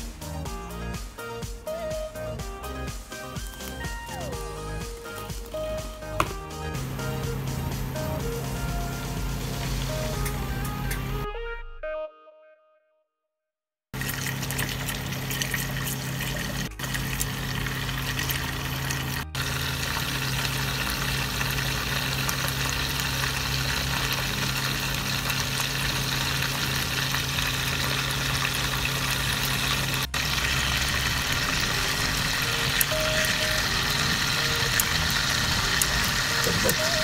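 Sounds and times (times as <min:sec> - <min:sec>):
food sizzling in hot oil: 0:14.0 - 0:37.0.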